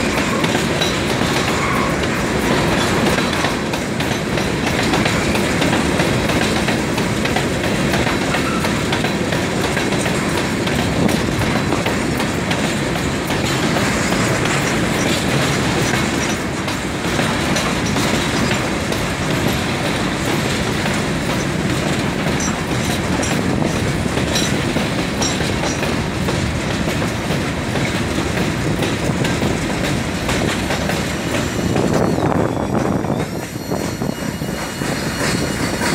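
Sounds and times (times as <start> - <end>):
freight train wheels rumbling: 0.0 - 35.9
wheels clacking over rail joints: 0.0 - 35.9
high wheel squeals: 1.3 - 3.1, 31.2 - 35.9.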